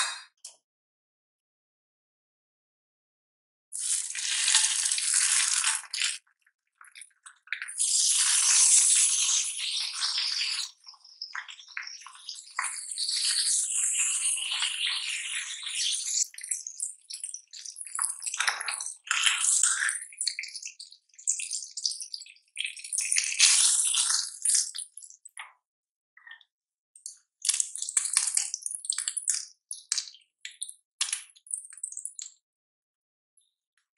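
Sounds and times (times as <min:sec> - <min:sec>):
bacon sizzling in a frying pan: 0:03.8 - 0:06.2, 0:07.7 - 0:25.1.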